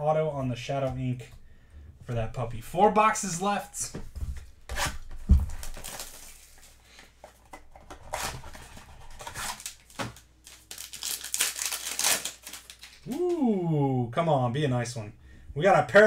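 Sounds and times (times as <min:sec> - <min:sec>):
foil wrapper tearing and crinkling: 0:04.8 - 0:06.7, 0:08.1 - 0:13.4.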